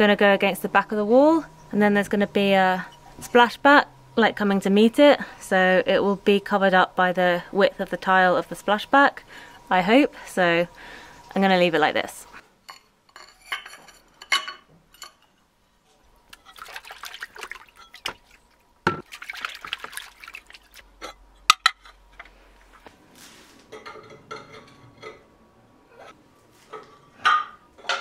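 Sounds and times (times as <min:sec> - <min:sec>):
water sloshing in plastic bucket: 0:16.3 - 0:20.9.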